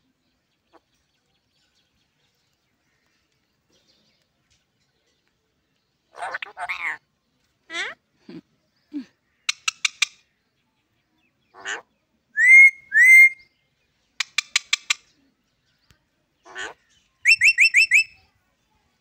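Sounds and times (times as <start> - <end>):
parrot chirping: 6.1 - 7.0, 12.4 - 13.4, 14.2 - 15.1, 16.5 - 18.1
parrot whistling: 12.4 - 13.4, 17.3 - 18.1.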